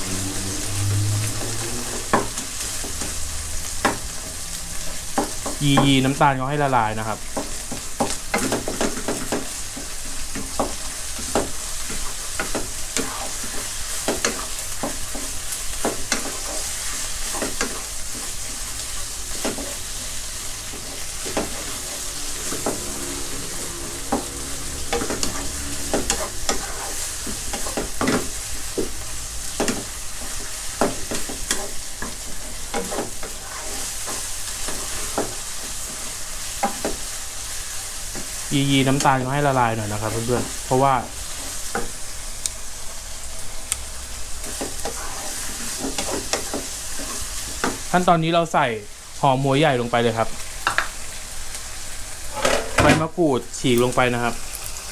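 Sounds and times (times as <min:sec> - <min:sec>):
meat sizzling in a frying pan: 0:00.0 - 0:54.9
wooden spatula scraping pan: 0:07.3 - 0:37.1, 0:44.4 - 0:47.9, 0:52.2 - 0:52.8.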